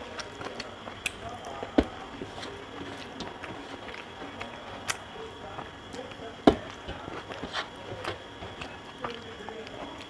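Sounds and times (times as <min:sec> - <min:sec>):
fingers mixing rice on metal plate: 0:00.0 - 0:10.0.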